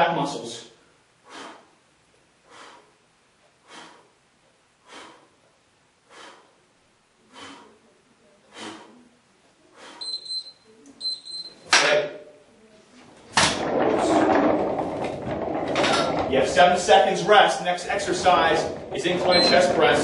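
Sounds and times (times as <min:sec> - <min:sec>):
forceful breaths: 0:00.8 - 0:01.8, 0:02.4 - 0:10.5.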